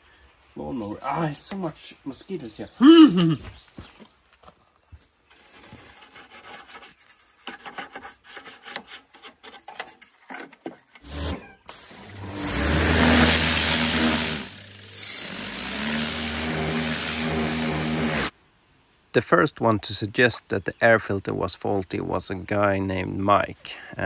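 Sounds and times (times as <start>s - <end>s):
pressure washer pump humming: 11.0s - 18.3s
water jet hissing on metal: 11.2s - 18.3s.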